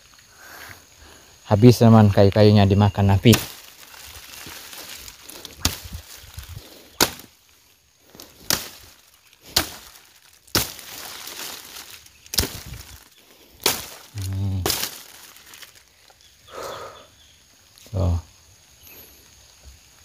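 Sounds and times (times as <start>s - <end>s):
brush rustling: 2.0s - 16.3s
blade chopping branches: 3.1s - 7.5s, 8.1s - 15.8s.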